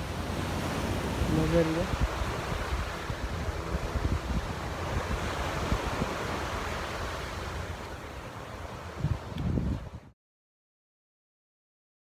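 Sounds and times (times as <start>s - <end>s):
waves washing up shore: 0.0s - 10.1s
wind buffeting microphone: 0.0s - 10.1s.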